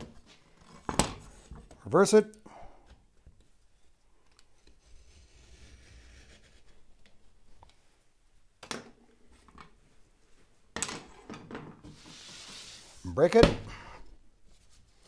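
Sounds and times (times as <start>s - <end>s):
knife scoring paper: 4.5s - 6.8s.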